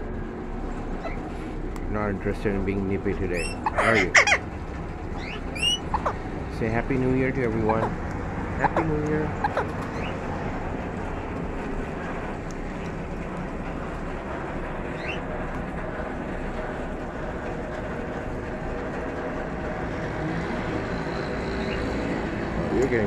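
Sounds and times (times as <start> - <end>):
low outdoor rumble: 0.0 - 23.0
faint rising chirp: 5.1 - 6.2.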